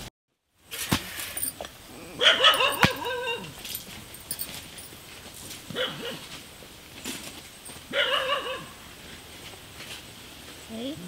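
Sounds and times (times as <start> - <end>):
dog yapping: 1.4 - 3.6, 5.7 - 6.3, 7.9 - 8.8.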